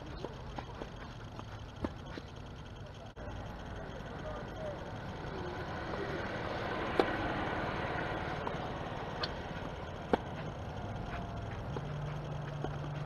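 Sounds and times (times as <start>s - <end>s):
outdoor background noise: 0.0s - 13.0s
tennis ball struck by racquet: 6.8s - 7.4s, 8.4s - 10.5s.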